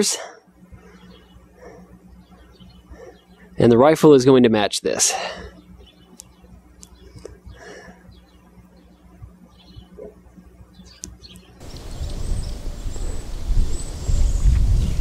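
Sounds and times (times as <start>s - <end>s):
faint low hum: 0.0s - 15.0s
wind rumbling on microphone: 11.6s - 15.0s.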